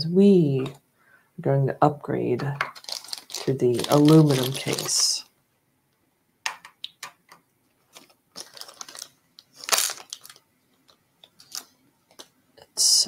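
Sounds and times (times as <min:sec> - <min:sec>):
plastic bag rustle: 0:02.6 - 0:05.2, 0:07.8 - 0:12.3.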